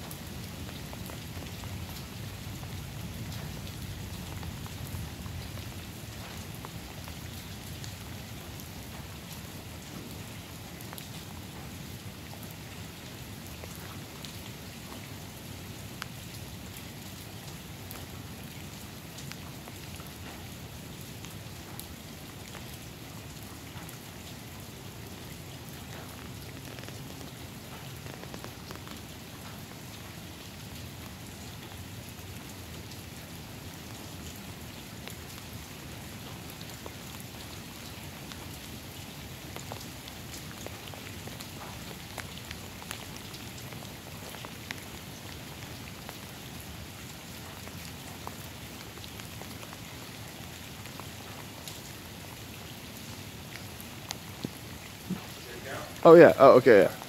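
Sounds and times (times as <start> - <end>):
rain falling on pavement: 0.0 - 57.0.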